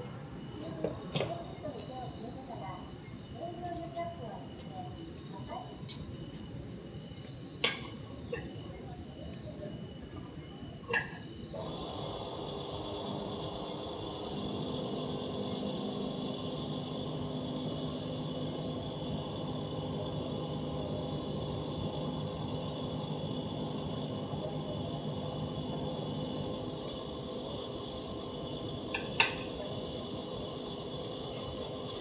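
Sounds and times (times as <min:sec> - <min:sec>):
fuel pump humming: 0:11.6 - 0:32.0.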